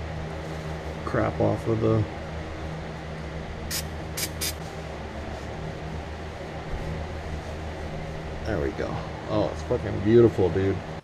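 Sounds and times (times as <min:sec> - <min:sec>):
steady low hum: 0:00.0 - 0:11.0
spray can hissing: 0:03.7 - 0:04.6.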